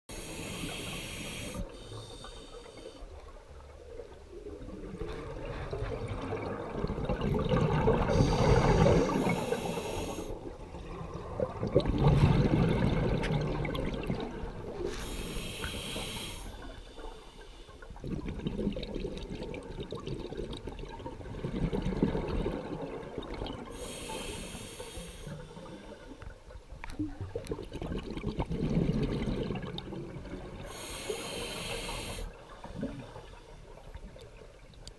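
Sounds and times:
hissing regulator inhale: 0.1s - 3.1s, 8.1s - 10.4s, 14.8s - 17.8s, 23.7s - 26.2s, 30.7s - 32.4s
gurgle of exhaled bubbles: 3.4s - 15.1s, 17.9s - 24.0s, 27.0s - 30.9s.

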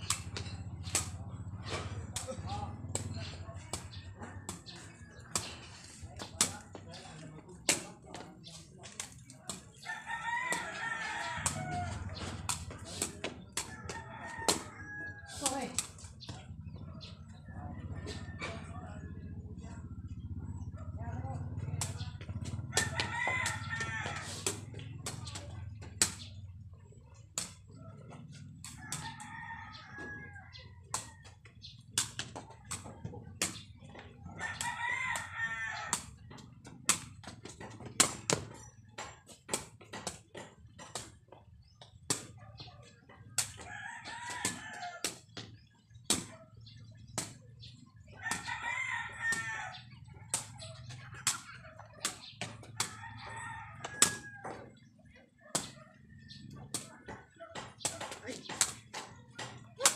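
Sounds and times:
ball kicked with sharp knocks: 0.0s - 7.0s, 21.5s - 26.4s, 30.9s - 42.4s
roosters crowing: 9.5s - 18.8s, 21.4s - 40.9s, 42.1s - 46.0s, 46.6s - 59.9s.

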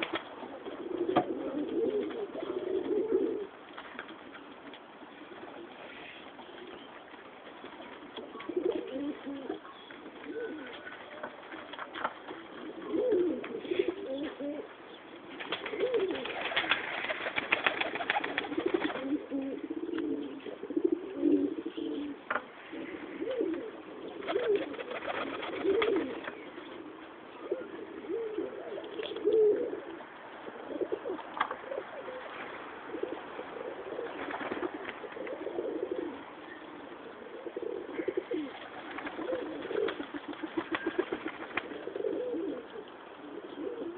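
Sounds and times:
pigeons cooing: 0.0s - 3.6s, 8.2s - 10.9s, 12.4s - 43.9s.

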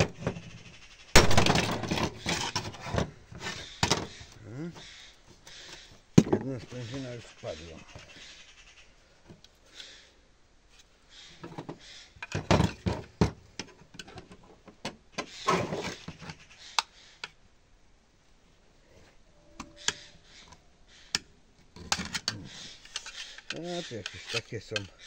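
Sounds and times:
metal parts clicking and scraping: 1.2s - 6.7s, 15.2s - 17.4s, 19.5s - 25.0s.

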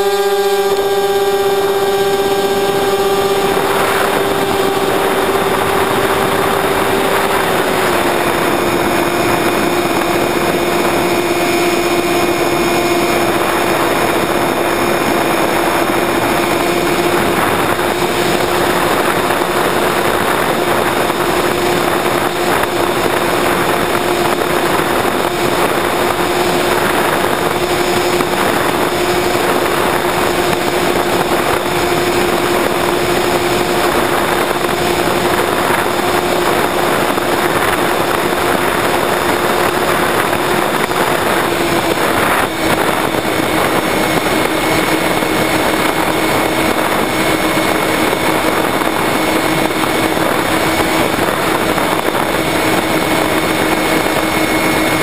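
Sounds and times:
model airplane propeller drone: 0.0s - 55.0s
wind rushing over camera: 0.0s - 55.0s.

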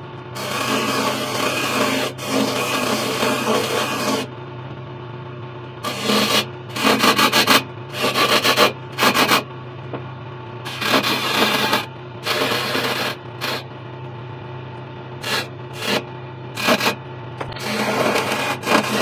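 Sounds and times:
chisel scraping spinning wood: 0.0s - 4.3s, 5.8s - 9.5s, 10.7s - 13.7s, 15.2s - 19.0s
lathe motor humming: 0.0s - 4.5s, 5.7s - 14.2s, 15.1s - 19.0s.

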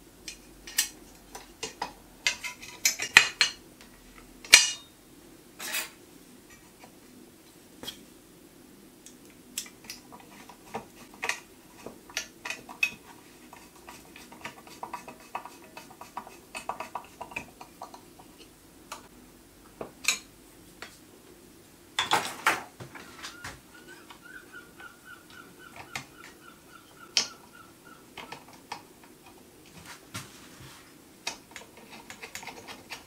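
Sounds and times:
screwdriver clattering among tools: 22.0s - 24.2s.

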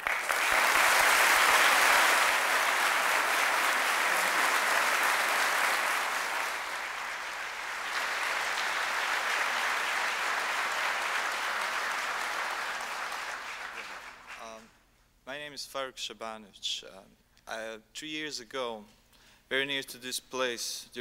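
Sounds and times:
large audience applauding: 0.0s - 14.6s.

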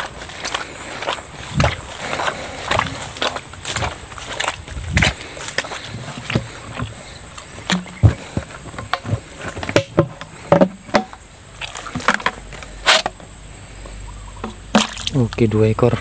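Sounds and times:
plastic traps knocking and clicking: 7.6s - 13.2s.

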